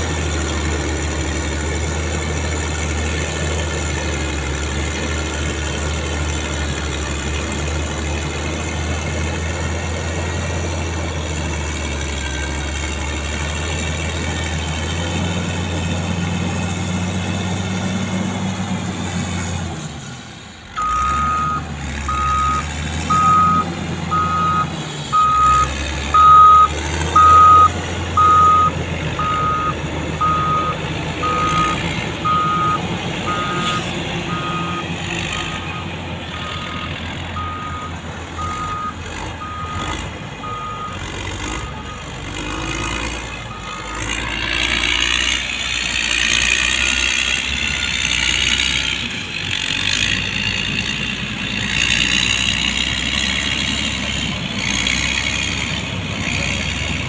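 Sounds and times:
diesel engine running: 0.0 - 57.0
reversing alarm beeping: 20.8 - 42.9.

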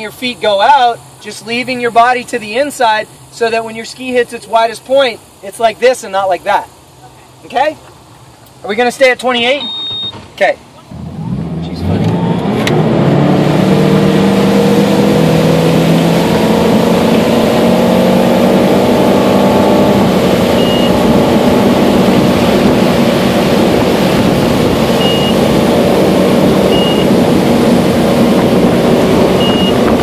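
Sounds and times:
short high beeps: 9.4 - 10.2, 20.5 - 21.0, 25.0 - 25.4, 26.7 - 27.1, 29.4 - 29.8
boat engine under load: 10.9 - 30.0.

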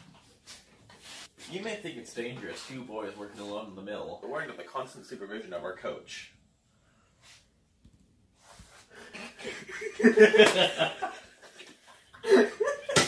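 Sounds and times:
boys laughing: 9.0 - 13.0.

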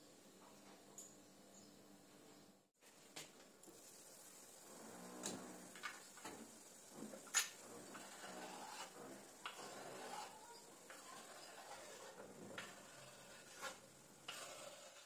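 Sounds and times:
knife scraping cutting board: 7.9 - 15.0.

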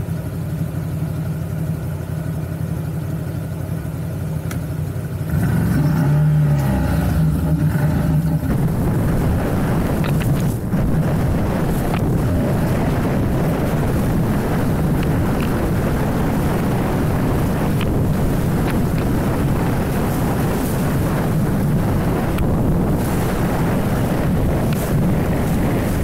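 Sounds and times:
atv engine running: 0.0 - 26.0
wind buffeting microphone: 5.8 - 26.0.

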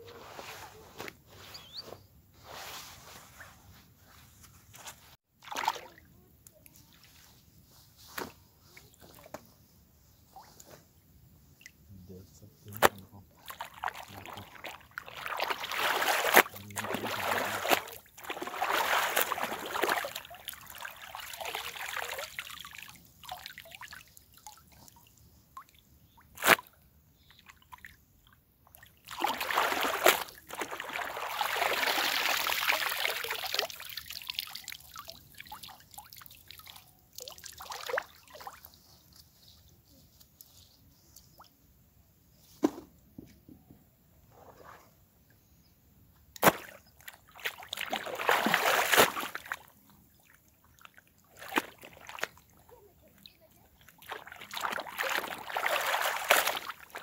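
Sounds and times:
cloth sloshing in water: 5.4 - 6.0, 12.9 - 25.0, 27.4 - 38.7, 46.4 - 57.0.

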